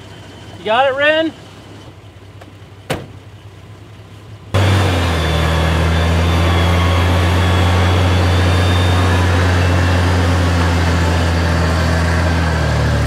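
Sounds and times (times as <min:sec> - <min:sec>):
winch mechanical drone: 0:04.6 - 0:13.0.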